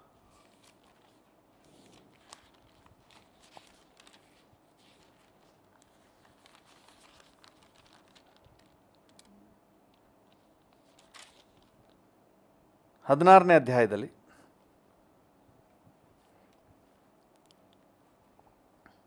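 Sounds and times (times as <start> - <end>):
faint clicks and rustles: 0.2 - 12.0, 15.6 - 19.0.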